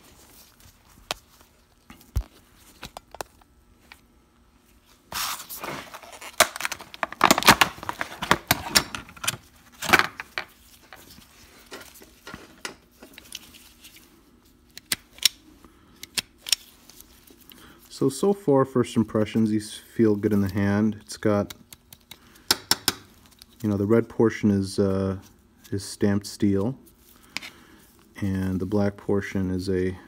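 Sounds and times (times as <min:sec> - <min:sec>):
packaging crackling and tearing: 0:05.2 - 0:10.0.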